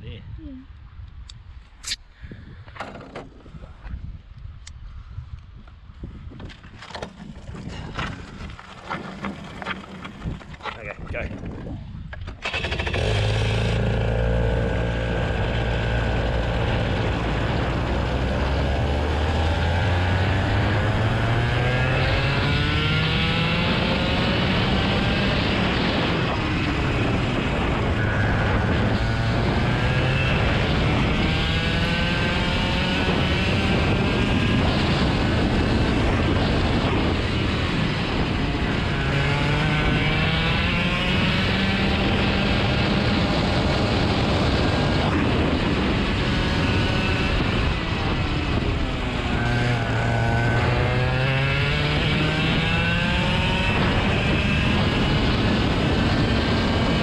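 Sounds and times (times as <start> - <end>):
vehicle engine revving under load: 12.4 - 25.8, 38.7 - 45.0, 48.5 - 57.0.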